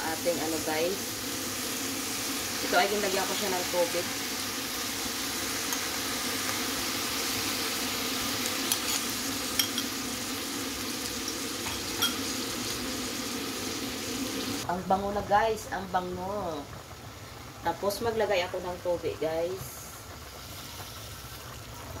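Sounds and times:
food sizzling in a pan: 0.0s - 22.0s
spoon clicking against pan: 9.6s - 9.9s.

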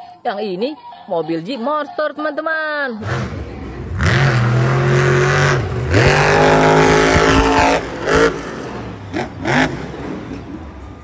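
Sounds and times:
truck engine revving hard: 3.0s - 10.7s.

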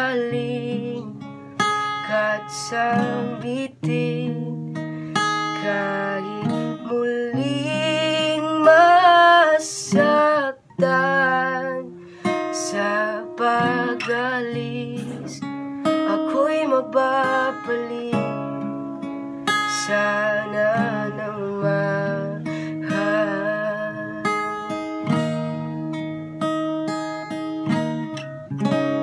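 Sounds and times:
man singing: 0.0s - 1.2s, 2.1s - 4.6s, 5.4s - 11.9s, 12.5s - 15.5s, 16.1s - 18.6s, 19.7s - 24.3s.

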